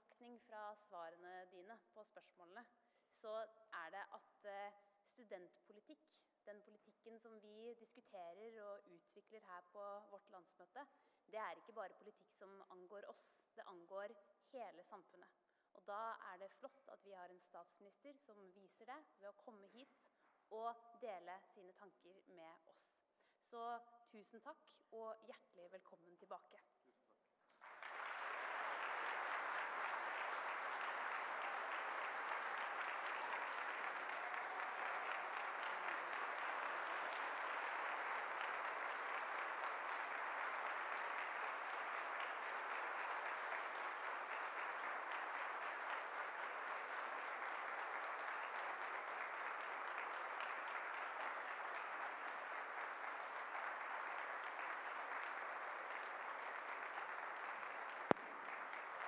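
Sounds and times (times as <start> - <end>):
audience applauding: 27.5 - 59.0.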